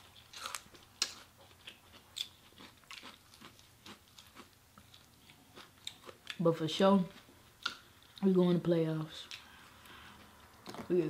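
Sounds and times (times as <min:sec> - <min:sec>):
crunchy chewing: 0:00.1 - 0:06.4.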